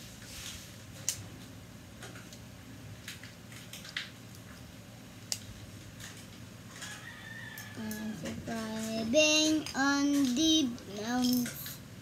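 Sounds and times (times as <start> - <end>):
steady low hum: 7.6 - 12.0.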